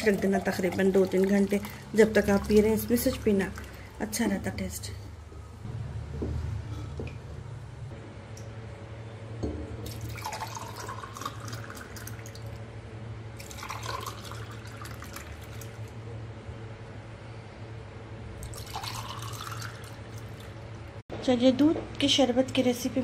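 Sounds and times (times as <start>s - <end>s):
liquid pouring into glass: 0.0s - 4.0s, 9.8s - 12.6s, 13.4s - 15.9s, 18.4s - 20.5s.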